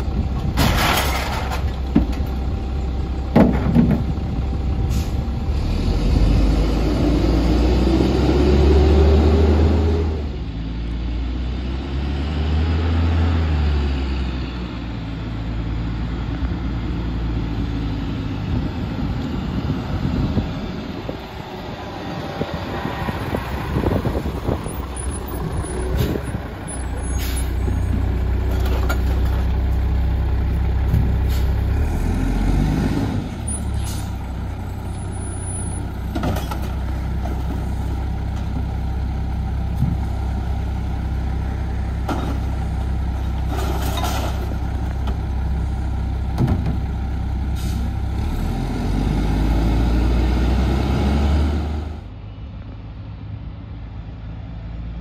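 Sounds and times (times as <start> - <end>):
diesel truck engine rumbling: 0.0 - 55.0
air brake hissing: 27.0 - 27.6, 47.6 - 47.9.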